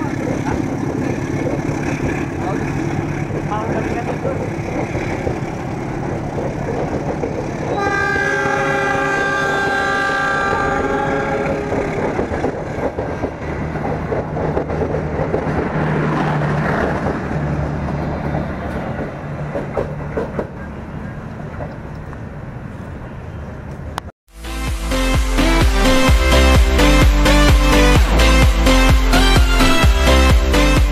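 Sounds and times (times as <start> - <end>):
train wheels rumbling on rails: 0.0 - 24.1
train horn: 7.7 - 12.0.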